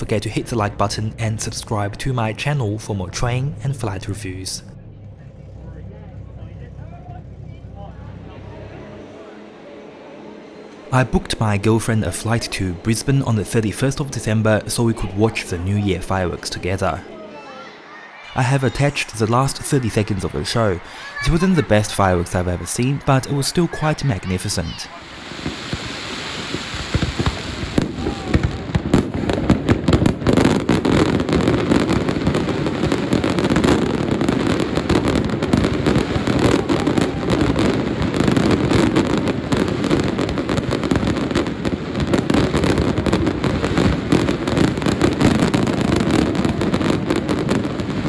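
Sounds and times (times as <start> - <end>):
fireworks bangs and crackles: 18.3 - 48.0.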